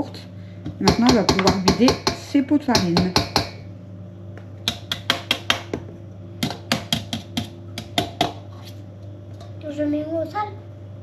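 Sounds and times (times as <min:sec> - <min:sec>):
plastic pots tapping on bowl: 0:00.7 - 0:03.6, 0:04.4 - 0:08.4.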